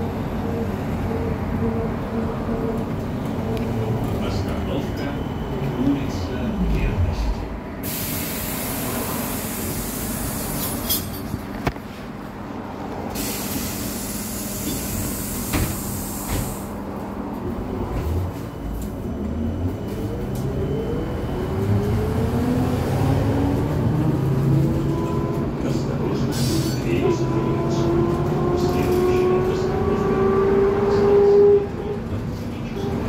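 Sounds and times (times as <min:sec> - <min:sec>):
air hiss: 0:07.8 - 0:10.9, 0:13.2 - 0:16.7.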